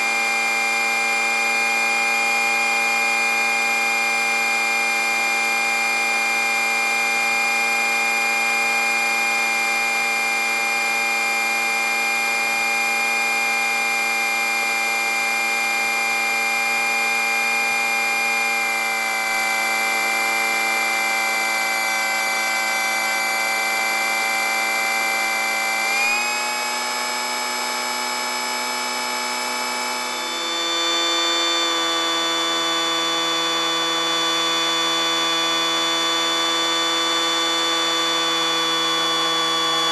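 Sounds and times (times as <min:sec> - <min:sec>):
aircraft propeller buzzing whine: 0:15.6 - 0:39.9.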